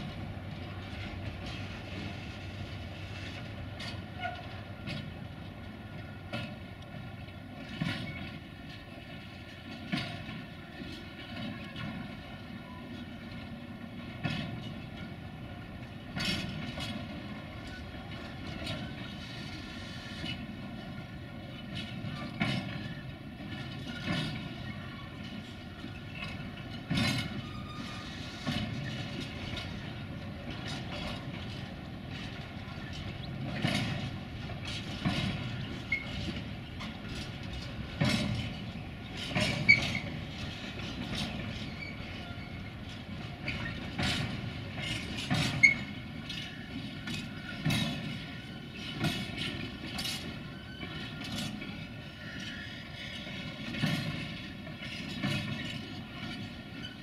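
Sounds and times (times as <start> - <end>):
railway wagons rumbling: 0.0 - 57.0
wheels knocking over rail joints: 21.5 - 57.0.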